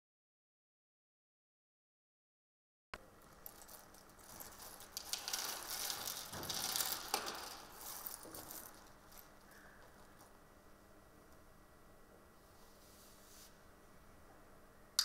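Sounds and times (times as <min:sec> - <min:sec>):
small plastic objects rattling: 0:03.2 - 0:10.4.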